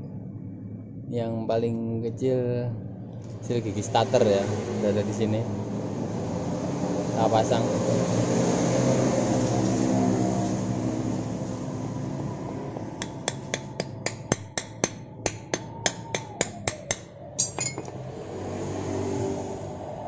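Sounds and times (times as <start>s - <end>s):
small hammer tapping metal: 13.0s - 18.0s.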